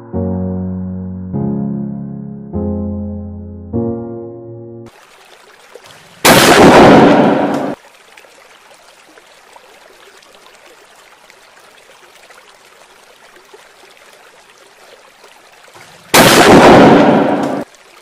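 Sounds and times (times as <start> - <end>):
flowing water hiss: 4.9 - 18.0
firecracker blast in water: 6.2 - 7.8, 15.8 - 17.7.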